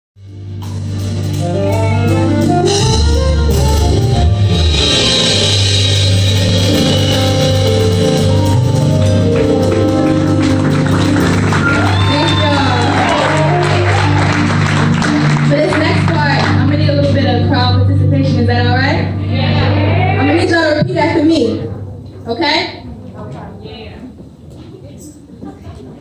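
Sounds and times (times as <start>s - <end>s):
drums with cymbal ticks: 0.2s - 11.2s
bass line: 0.2s - 22.0s
instrumental band music: 0.2s - 23.1s
melody: 1.0s - 20.5s.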